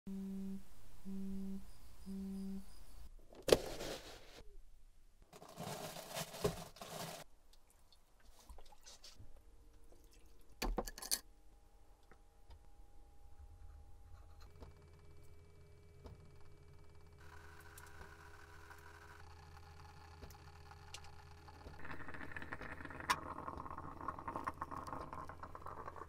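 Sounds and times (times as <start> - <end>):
phone vibrating on wooden table: 0.1 - 2.8, 21.7 - 23.2.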